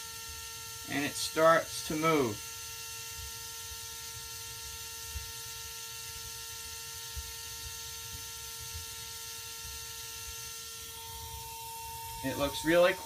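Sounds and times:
electric motor whine: 0:00.0 - 0:13.0.

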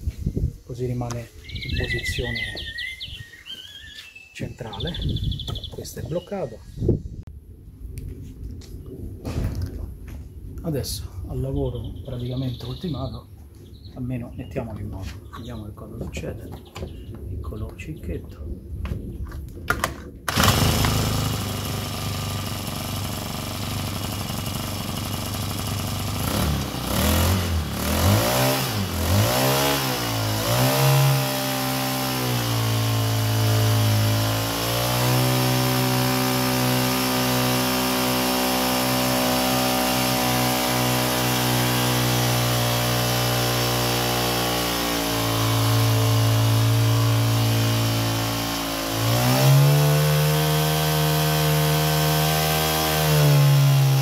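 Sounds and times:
small outboard engine running: 0:20.3 - 0:54.0.

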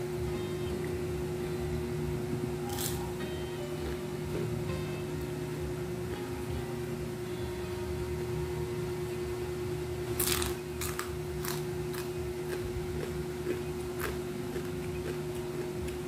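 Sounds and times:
steady hum: 0:00.0 - 0:16.0
fried crab crunching: 0:02.7 - 0:04.8, 0:10.1 - 0:16.0.

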